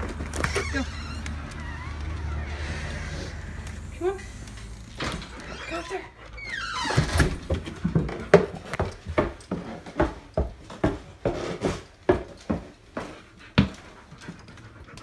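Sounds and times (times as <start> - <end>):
footsteps on wood: 6.9 - 14.4.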